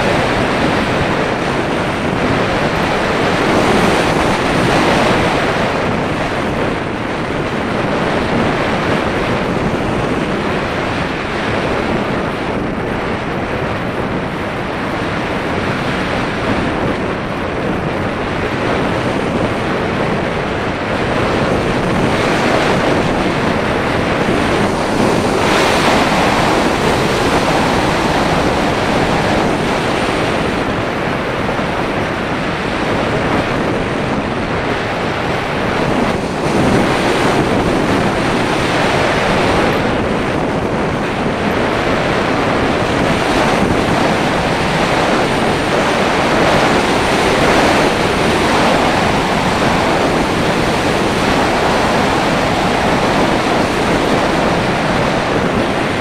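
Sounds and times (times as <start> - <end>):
loud wind noise: 0.0 - 56.0.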